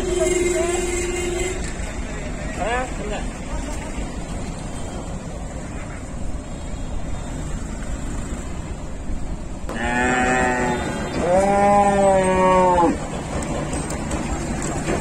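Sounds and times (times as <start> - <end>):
cow mooing: 9.7 - 13.0.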